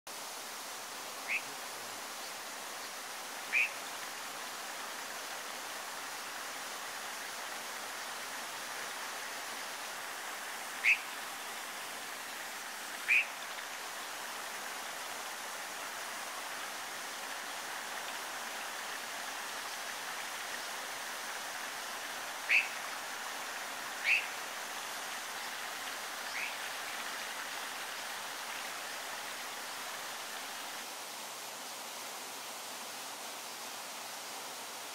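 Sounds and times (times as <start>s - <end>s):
stream rushing: 0.1s - 34.9s
short high bird calls: 1.2s - 1.5s, 3.5s - 3.8s, 10.8s - 11.1s, 13.0s - 13.4s, 22.5s - 22.8s, 24.0s - 24.4s, 26.3s - 26.6s.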